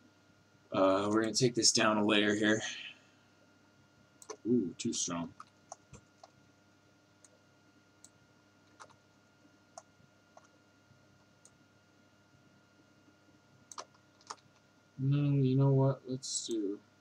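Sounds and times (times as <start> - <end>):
computer mouse clicks: 4.2 - 4.4, 8.0 - 9.0, 9.7 - 10.6, 11.4 - 11.6, 13.7 - 14.6.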